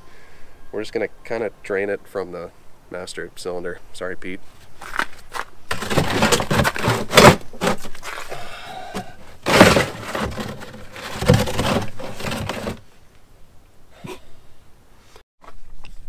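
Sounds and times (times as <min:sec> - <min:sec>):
plastic pan scraping and knocking: 0:05.3 - 0:08.2, 0:09.0 - 0:12.8.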